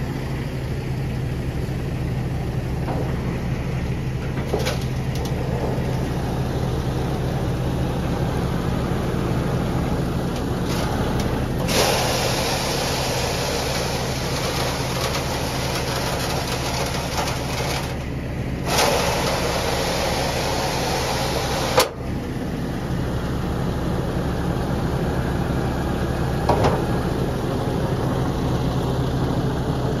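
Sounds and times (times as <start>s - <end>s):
truck diesel engine idling: 0.0s - 30.0s
hiss: 11.6s - 16.8s, 18.7s - 22.0s.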